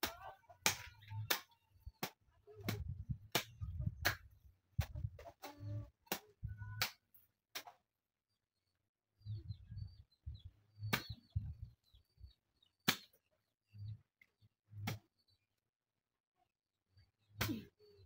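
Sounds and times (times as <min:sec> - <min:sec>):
birds chirping faintly: 0:05.5 - 0:15.7.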